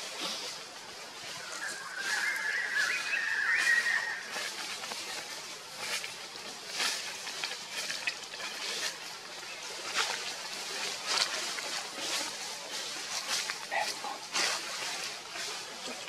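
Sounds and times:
soft rustles and clicks: 4.3 - 16.0.

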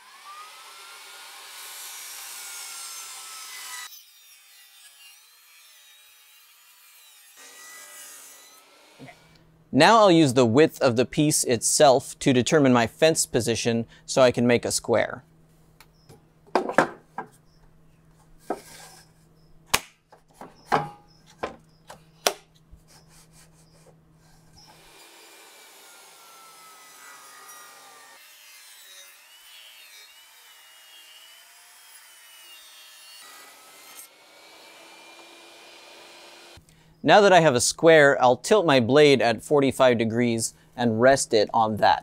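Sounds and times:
table saw whirring: 0.0 - 9.3, 24.6 - 36.6
wood knocking against table saw: 16.5 - 17.4.

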